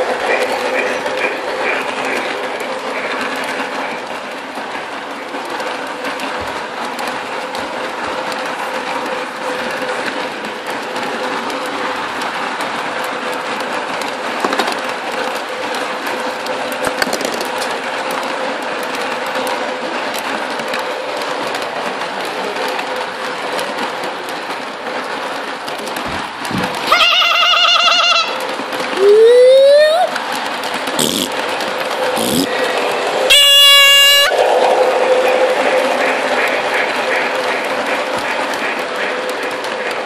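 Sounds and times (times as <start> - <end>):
model train wheels rumbling: 0.0 - 40.0
model train motor hum: 26.7 - 40.0.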